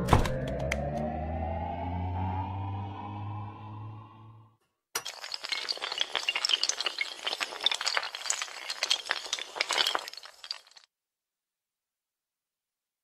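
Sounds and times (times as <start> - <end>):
dominoes toppling clatter: 5.0 - 10.8.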